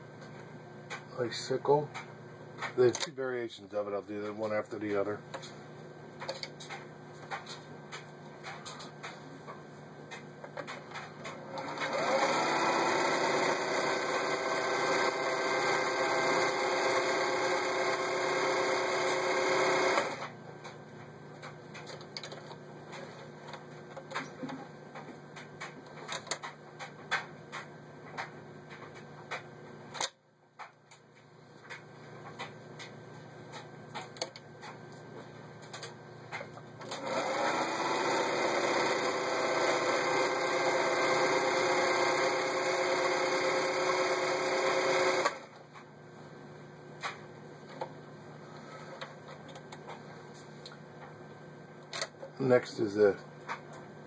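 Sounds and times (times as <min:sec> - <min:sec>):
sewing machine stitching: 0:11.3 - 0:20.3, 0:36.8 - 0:45.6.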